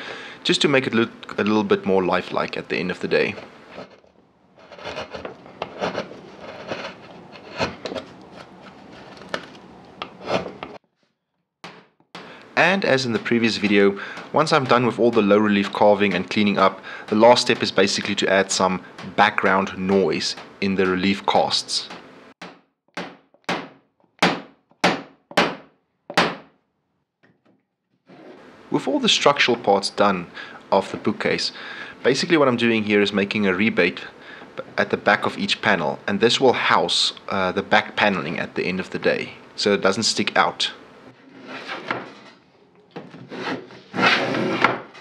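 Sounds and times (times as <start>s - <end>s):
carving tool scraping wood: 3.3s - 9.3s, 10.1s - 10.8s, 43.2s - 45.0s.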